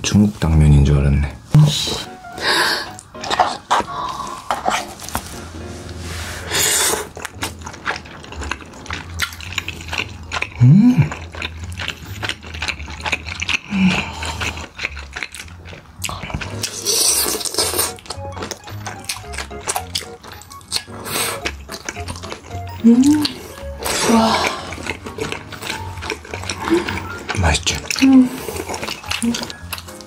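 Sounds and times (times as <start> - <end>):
background music: 0.0 - 30.0
wet chewing: 1.5 - 30.0
noodle slurps: 23.1 - 30.0.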